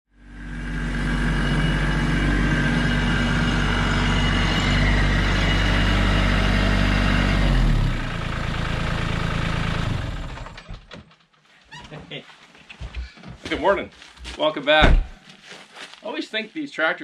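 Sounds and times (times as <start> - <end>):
tractor diesel engine running: 0.1 - 11.1
faint high whine: 0.2 - 6.9.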